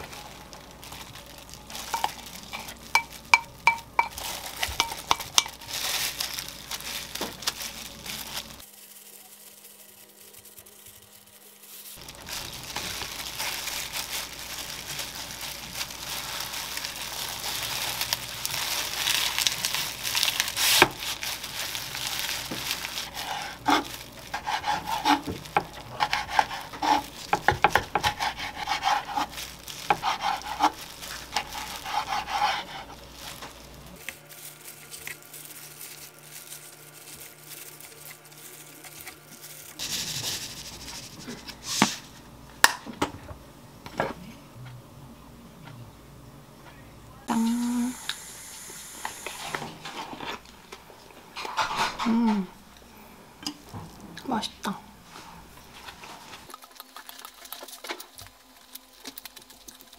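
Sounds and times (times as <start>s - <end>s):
crinkling plastic gloves: 0.0s - 42.3s, 55.1s - 59.9s.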